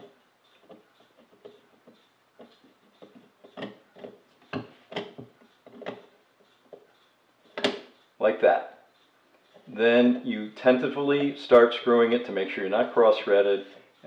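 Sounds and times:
metal bezel clicking and rubbing: 0:00.0 - 0:08.2, 0:08.8 - 0:11.8.

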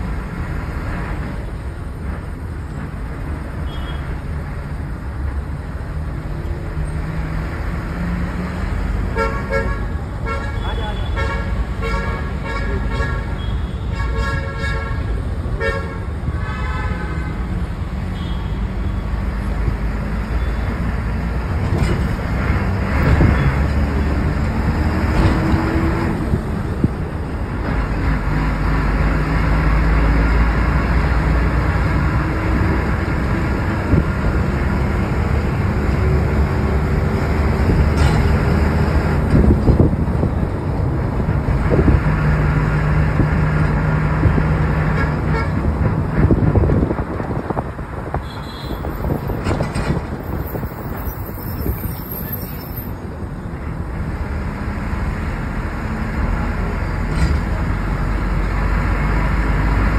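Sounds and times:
engine and road rumble: 0:00.0 - 0:59.9
car horn blasts: 0:48.2 - 0:48.9.

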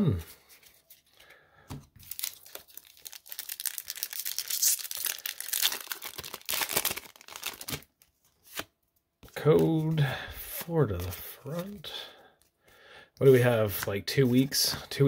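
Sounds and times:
foil wrapper tearing: 0:02.0 - 0:07.9.

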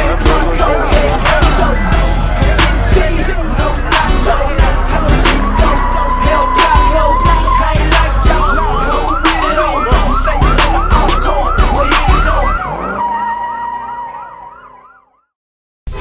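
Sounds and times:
hip-hop beat with heavy bass: 0:00.0 - 0:14.2
electronic siren yelping: 0:00.5 - 0:15.4.

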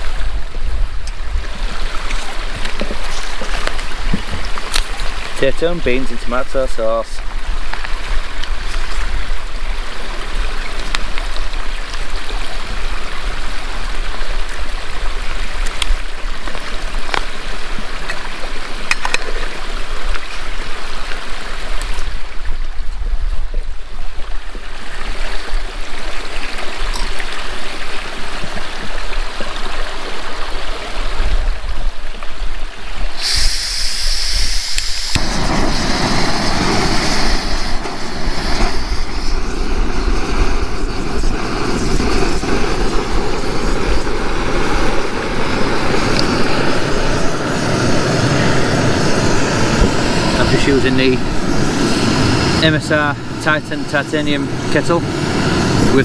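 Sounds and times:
stream rushing over rocks: 0:00.0 - 0:33.8
hissing rush: 0:33.1 - 0:56.0.

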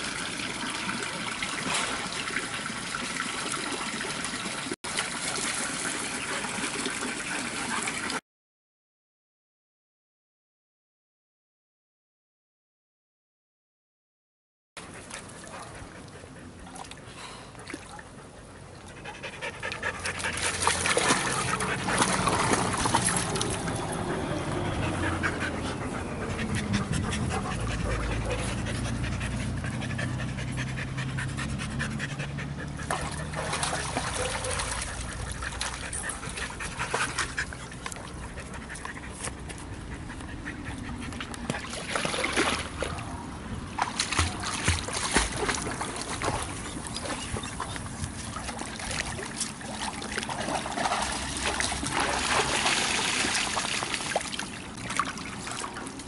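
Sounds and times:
dog panting: 0:18.2 - 0:41.6.

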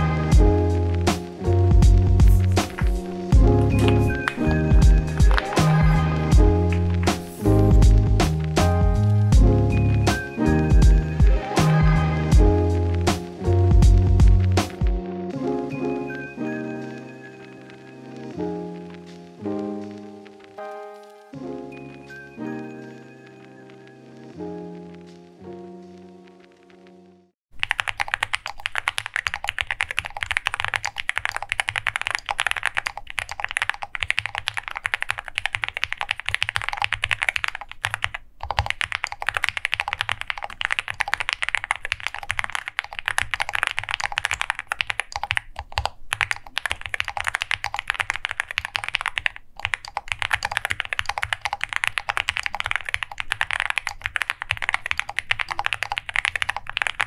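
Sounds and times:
mechanical keyboard typing: 0:03.6 - 0:07.1, 0:27.6 - 0:57.0.

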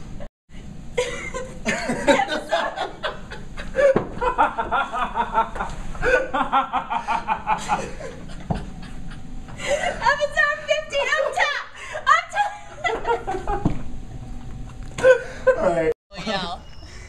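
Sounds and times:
people laughing: 0:01.0 - 0:10.2, 0:10.9 - 0:13.8.

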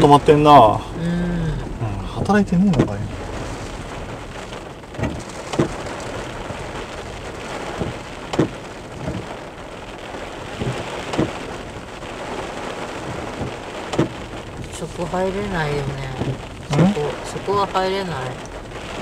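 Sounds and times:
heavy rain drumming on car roof: 0:00.0 - 0:19.0
sharp knocks of rain hits: 0:00.0 - 0:19.0.

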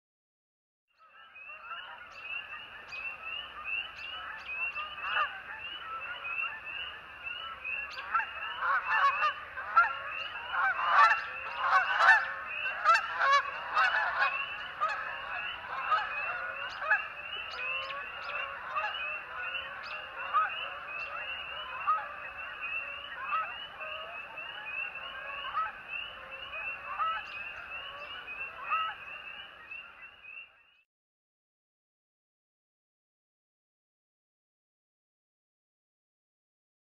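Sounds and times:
geese honking: 0:01.2 - 0:30.0.

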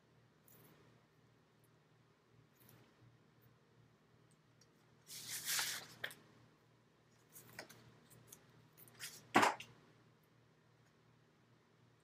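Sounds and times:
paper rustling and crinkling: 0:05.1 - 0:06.2
sharp paper crackle: 0:05.1 - 0:06.2.

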